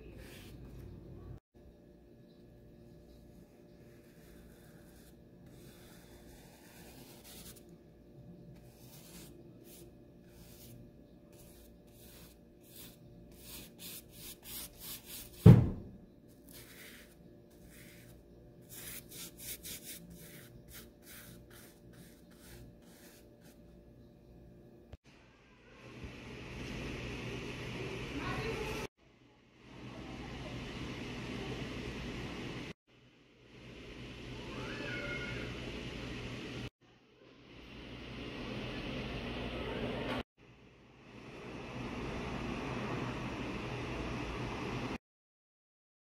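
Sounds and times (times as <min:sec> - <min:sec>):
paintbrush rubbing strokes: 0:03.1 - 0:07.7, 0:08.4 - 0:15.4, 0:16.3 - 0:23.8
loud low thump: 0:15.4 - 0:16.0.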